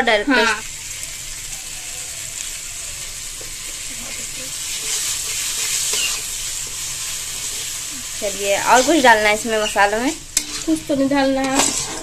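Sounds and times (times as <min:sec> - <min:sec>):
masala sizzling in hot oil: 0:00.0 - 0:12.0
metal spatula stirring: 0:03.6 - 0:12.0.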